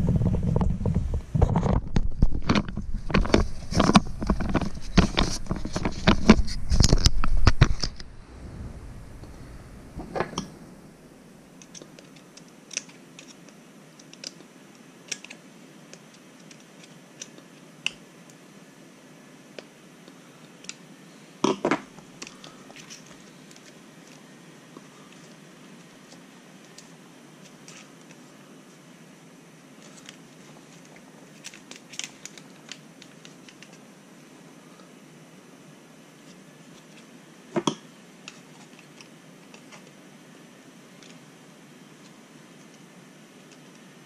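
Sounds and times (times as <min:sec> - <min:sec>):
small parts clicking and tapping: 0:11.6 - 0:14.5, 0:15.1 - 0:18.0, 0:30.8 - 0:33.8.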